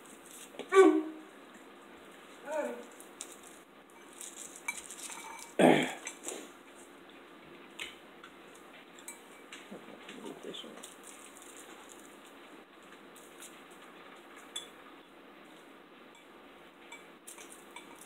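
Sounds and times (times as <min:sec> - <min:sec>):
cutlery clinking on dishes: 0:04.0 - 0:06.2, 0:16.9 - 0:18.0.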